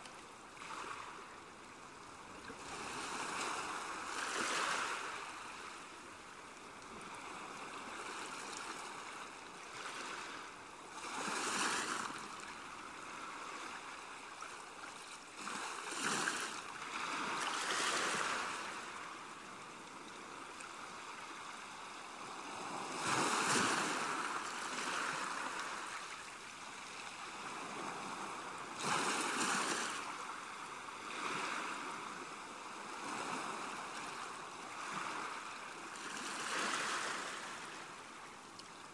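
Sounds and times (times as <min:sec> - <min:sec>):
ocean waves breaking: 0:15.4 - 0:19.3, 0:20.9 - 0:38.0.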